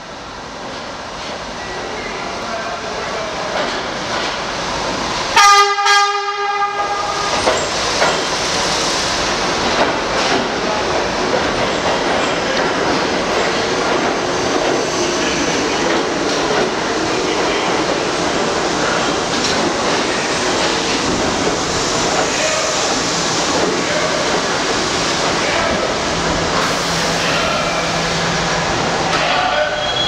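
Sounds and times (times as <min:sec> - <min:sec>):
train rolling rumble: 0:00.0 - 0:30.0
subway train horn: 0:05.3 - 0:07.5, 0:26.6 - 0:30.0.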